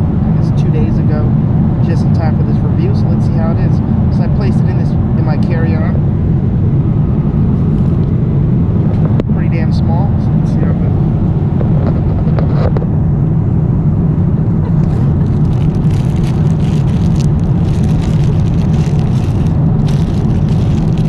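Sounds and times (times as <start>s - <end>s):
airliner cabin drone: 0.0s - 21.0s
rustling and handling noises: 14.9s - 21.0s.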